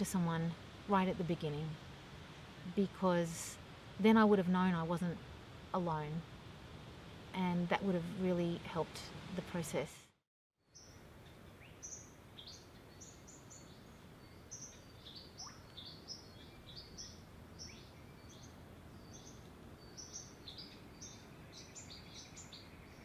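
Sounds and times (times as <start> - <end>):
small birds chirping: 10.7 - 23.0.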